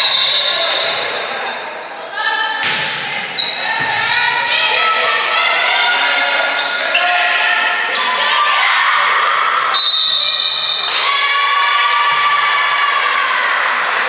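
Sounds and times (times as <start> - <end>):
crowd voices: 0.0 - 14.0
sneaker squeaks: 3.3 - 4.8, 6.0 - 7.3.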